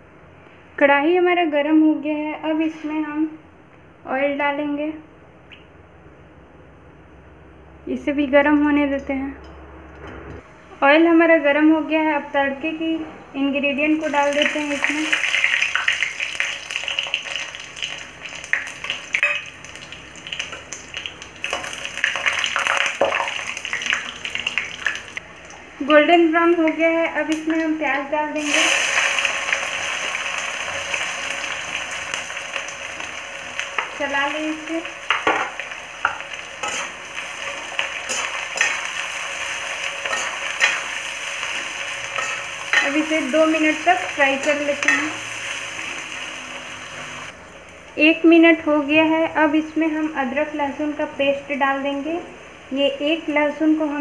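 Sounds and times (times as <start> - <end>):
spices sizzling in hot oil: 13.9 - 47.9
metal spatula stirring: 36.0 - 39.0, 39.9 - 41.0, 42.0 - 43.2.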